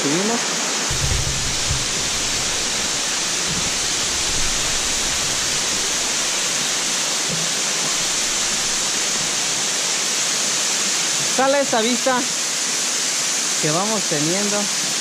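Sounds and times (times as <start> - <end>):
waterfall rushing: 0.0 - 15.0
low thumps: 0.9 - 9.6.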